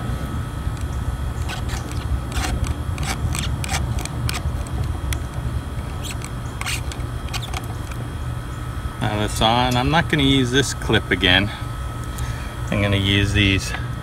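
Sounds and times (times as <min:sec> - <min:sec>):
razor blade cutting rubber hose: 0:01.4 - 0:04.7, 0:05.9 - 0:07.8.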